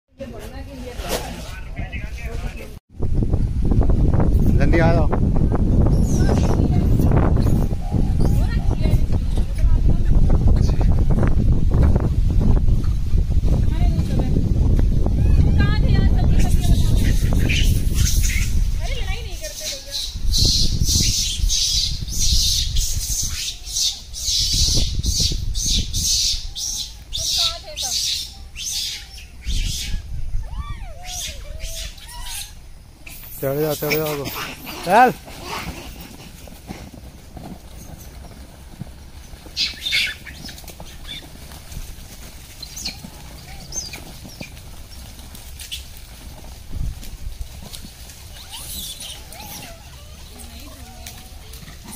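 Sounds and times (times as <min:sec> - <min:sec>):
rustling and shuffling: 0:00.2 - 0:02.8, 0:33.0 - 0:51.9
monkey high-pitched calls: 0:05.9 - 0:08.8, 0:15.2 - 0:15.7, 0:16.4 - 0:18.7, 0:19.6 - 0:36.2, 0:39.6 - 0:41.3, 0:42.6 - 0:44.6, 0:48.3 - 0:51.9
monkey squeaks: 0:05.9 - 0:09.4, 0:16.4 - 0:18.7, 0:19.6 - 0:36.2, 0:39.6 - 0:41.3, 0:48.3 - 0:51.2.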